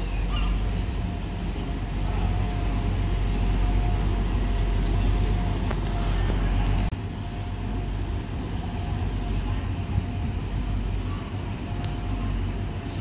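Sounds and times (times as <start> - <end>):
constant whine: 0.0 - 13.0
train engine rumble: 0.0 - 13.0.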